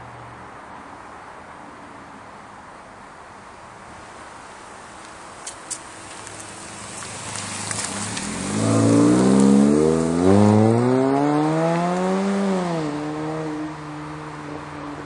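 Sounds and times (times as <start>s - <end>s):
car engine accelerating: 6.0s - 14.7s.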